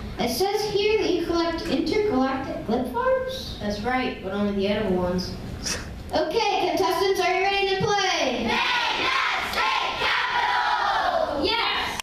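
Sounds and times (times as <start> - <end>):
children shouting in unison: 8.5 - 12.0.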